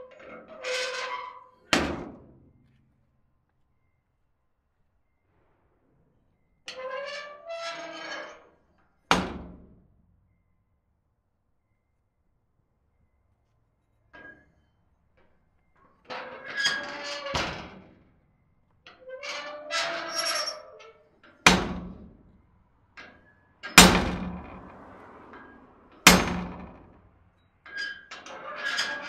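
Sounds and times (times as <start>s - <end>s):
squeaky door hinge creaking: 18.9s - 21.0s.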